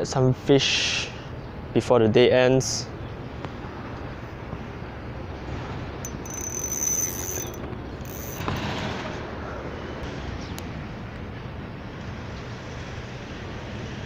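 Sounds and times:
fishing reel whirring: 6.0s - 8.5s
fishing reel click: 6.1s - 8.4s.

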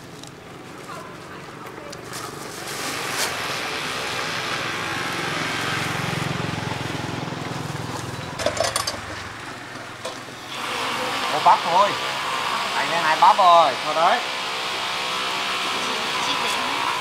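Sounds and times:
small vehicle engine passing: 2.1s - 14.2s.

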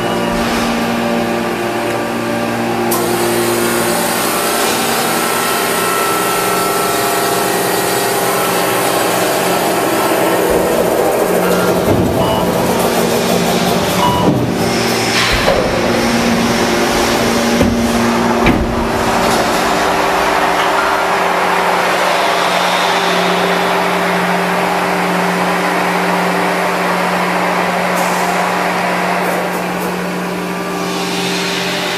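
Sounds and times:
press machinery humming: 0.0s - 31.9s
metal clanks: 8.5s - 21.3s.

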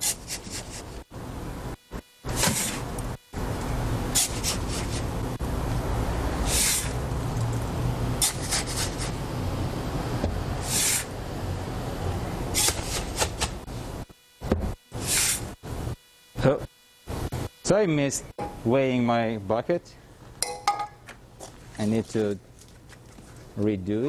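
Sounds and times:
sand scraping in a bin: 2.3s - 2.9s, 6.4s - 7.0s, 10.6s - 11.1s, 15.0s - 15.5s.

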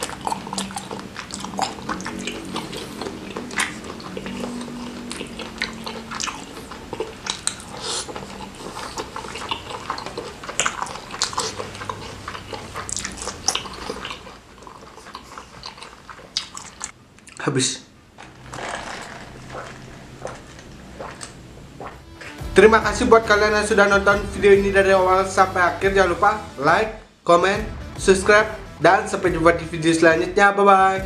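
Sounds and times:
sucking and licking fingers: 0.0s - 17.4s, 18.2s - 22.4s
wet chewing and lip smacking: 0.0s - 17.4s, 18.3s - 22.4s
mouth clicks: 0.0s - 17.5s
low steady hum: 0.0s - 27.3s.

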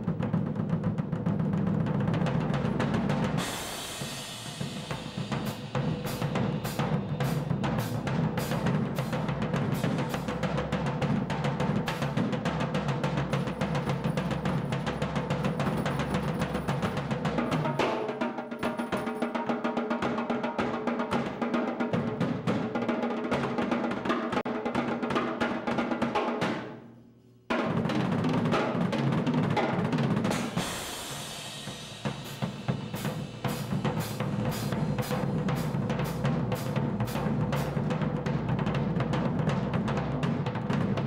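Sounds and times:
drum kit solo: 0.0s - 26.8s, 27.5s - 41.0s
cymbal wash: 3.2s - 10.4s, 30.3s - 37.8s.

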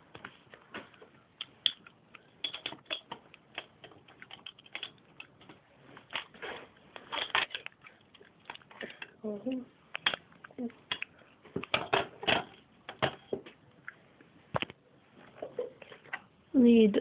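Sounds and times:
plastic bricks clicking: 1.6s - 5.4s.

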